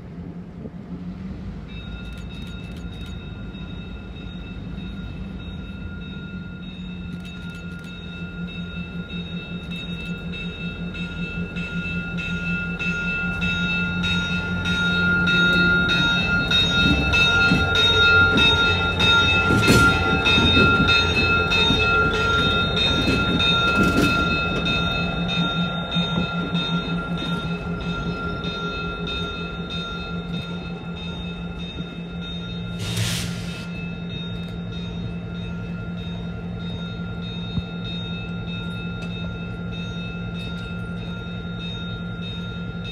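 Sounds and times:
diesel locomotive rolling past: 0:00.0 - 0:42.9
railroad crossing bell ringing: 0:01.5 - 0:42.9
train wheel clacks: 0:06.7 - 0:29.4.

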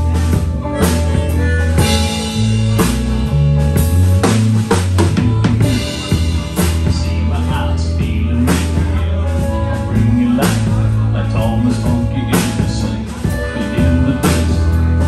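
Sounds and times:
drum kit kick and snare: 0:00.0 - 0:09.7
electric bass line: 0:00.0 - 0:15.0
electric guitars: 0:00.0 - 0:15.0.

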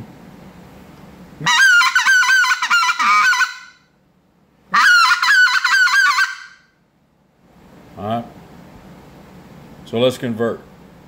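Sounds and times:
duck call choppy notes: 0:01.4 - 0:03.8, 0:04.7 - 0:06.7.

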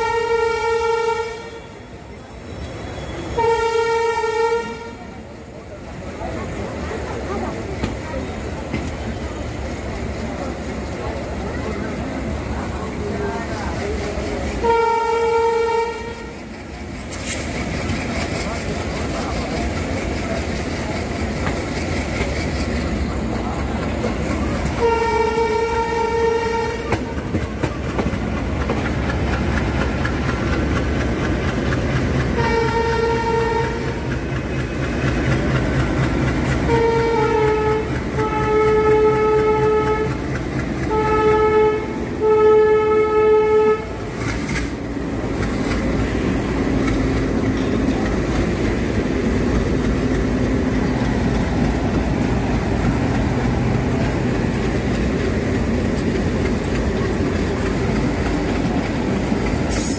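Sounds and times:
locomotive horn blasts: 0:00.0 - 0:02.0, 0:02.8 - 0:05.1, 0:14.6 - 0:16.4, 0:24.7 - 0:27.4, 0:32.3 - 0:34.0, 0:36.5 - 0:44.2
train wheels clattering on rails: 0:06.2 - 0:59.9.

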